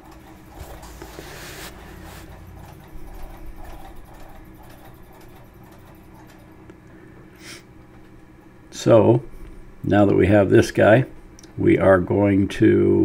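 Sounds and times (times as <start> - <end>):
sewing machine needle strokes: 0.0 - 6.6
motor hum: 0.0 - 12.2.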